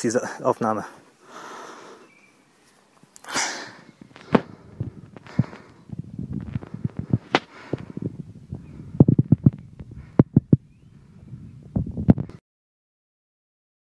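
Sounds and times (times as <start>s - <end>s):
dull low knocks and rubbing: 4.0s - 12.4s.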